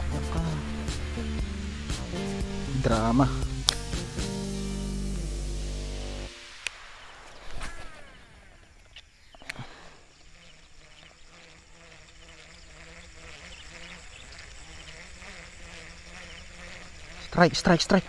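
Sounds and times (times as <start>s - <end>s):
sharp click: 3.6s - 4.0s.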